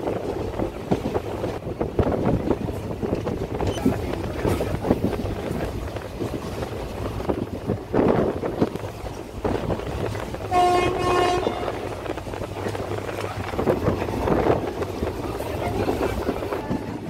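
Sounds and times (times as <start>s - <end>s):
train rumbling on track: 0.0s - 17.0s
train horn blast: 10.4s - 12.2s.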